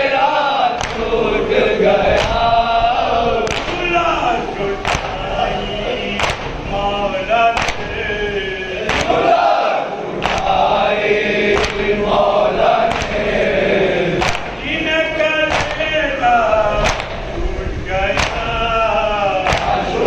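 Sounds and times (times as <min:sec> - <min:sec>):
men chanting together: 0:00.0 - 0:20.0
chest-beating slaps: 0:00.8 - 0:01.1, 0:02.2 - 0:02.5, 0:03.4 - 0:04.0, 0:04.8 - 0:05.3, 0:06.1 - 0:06.7, 0:07.6 - 0:08.0, 0:08.8 - 0:09.3, 0:10.2 - 0:10.8, 0:11.4 - 0:12.1, 0:12.9 - 0:13.4, 0:14.2 - 0:14.7, 0:15.5 - 0:16.0, 0:16.8 - 0:17.3, 0:18.2 - 0:18.6, 0:19.4 - 0:20.0.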